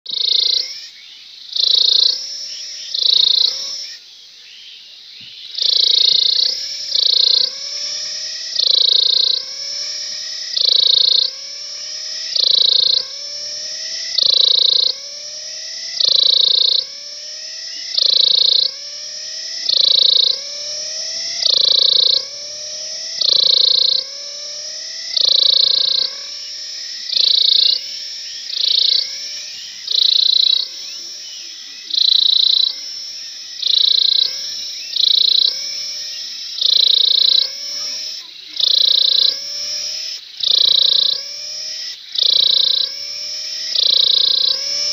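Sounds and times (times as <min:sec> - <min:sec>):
cicada singing: 0:00.1 - 0:44.9.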